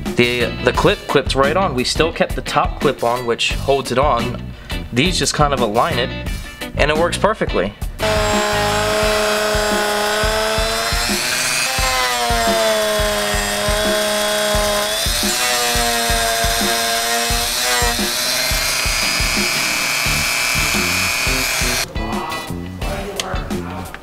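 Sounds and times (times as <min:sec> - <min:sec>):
music with steady beat: 0:00.0 - 0:24.0
rotary tool grinding: 0:08.0 - 0:21.9.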